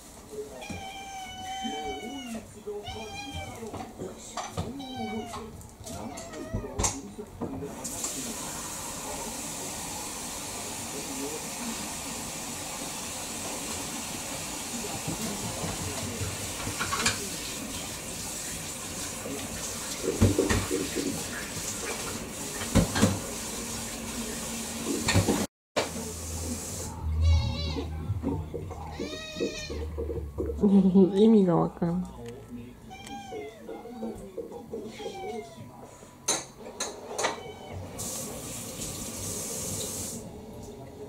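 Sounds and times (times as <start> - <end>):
kitchen tap running: 7.8 - 26.9, 37.9 - 40.2.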